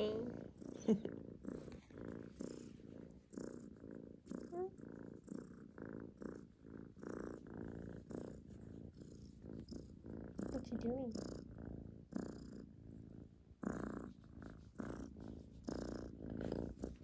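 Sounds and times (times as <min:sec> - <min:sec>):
kitten purring: 0:00.0 - 0:17.0.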